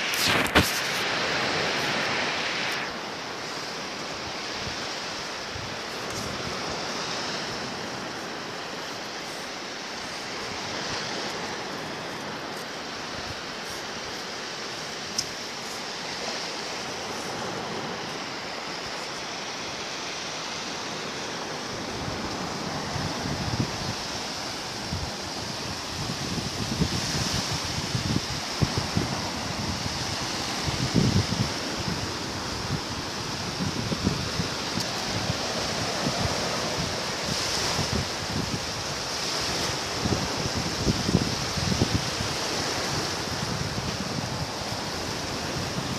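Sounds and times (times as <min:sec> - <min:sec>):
small waves breaking on shore: 0:00.0 - 0:45.9
wind buffeting microphone: 0:21.8 - 0:45.9.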